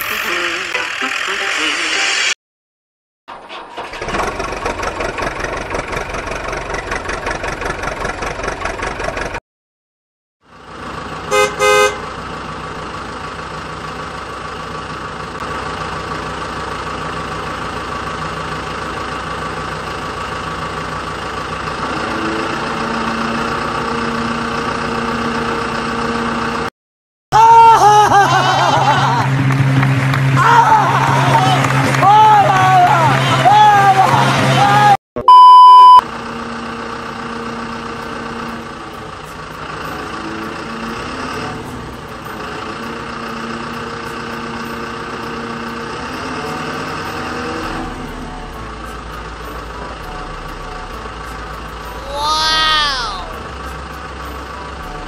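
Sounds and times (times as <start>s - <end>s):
vehicle engine running: 0.0s - 2.4s, 3.7s - 9.4s, 10.4s - 26.7s, 28.1s - 35.0s, 36.0s - 55.0s
short loud horn toots: 11.3s - 12.0s.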